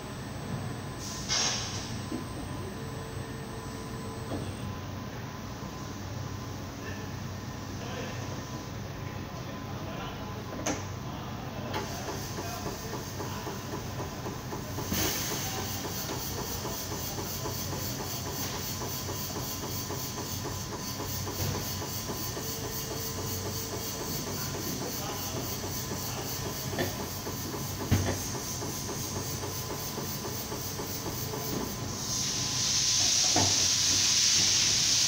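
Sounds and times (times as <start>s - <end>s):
compressed air hissing: 1.0s - 1.9s, 14.8s - 16.7s, 30.2s - 35.0s.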